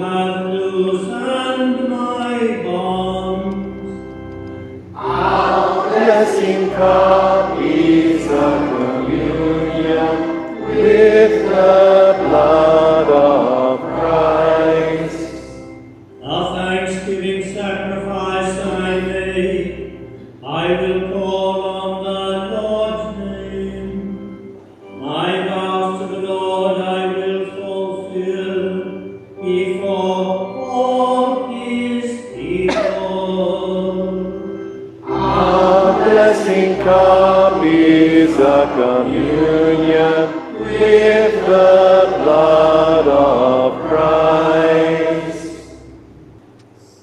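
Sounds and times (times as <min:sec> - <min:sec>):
person chanting a psalm: 0:00.0 - 0:04.0, 0:05.0 - 0:45.8
low held accompaniment: 0:00.0 - 0:47.0.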